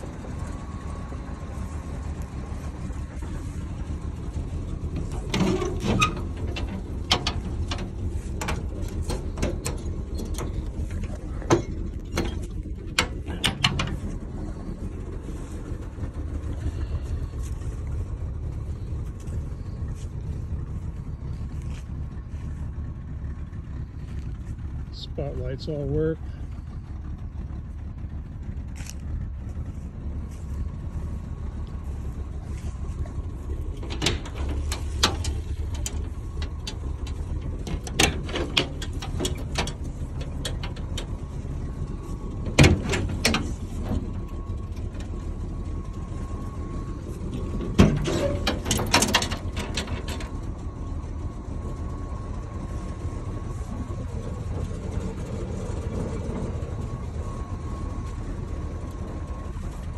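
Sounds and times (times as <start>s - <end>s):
truck idling: 0.0s - 59.9s
metal latches clicking and knocking: 47.7s - 50.3s.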